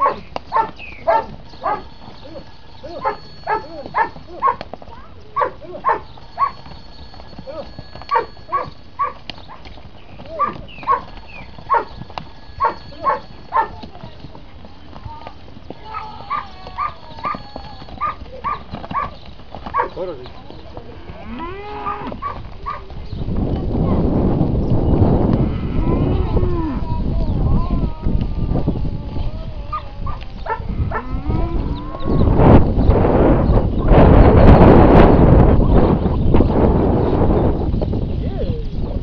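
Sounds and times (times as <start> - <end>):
dog barking: 0.0 - 1.9, 3.0 - 4.6, 5.4 - 6.6, 8.1 - 9.2, 10.4 - 11.1, 11.7 - 11.9, 12.6 - 13.8, 18.0 - 19.1, 19.7 - 20.0, 21.9 - 22.9, 29.7 - 31.1
cow mooing: 15.8 - 18.6, 20.8 - 22.8, 25.2 - 32.3.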